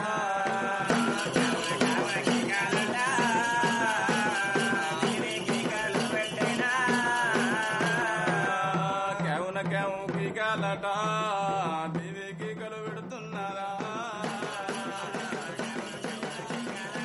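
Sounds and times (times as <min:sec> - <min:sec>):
steady drum beat: 0:00.0 - 0:17.0.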